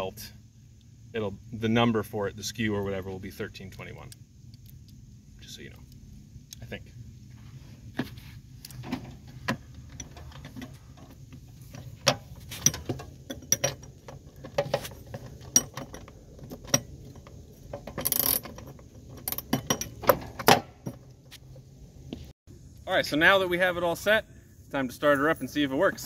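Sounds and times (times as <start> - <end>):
metal clinks and knocks: 8.8 - 21.3
ratchet wrench clicking: 18.0 - 18.6.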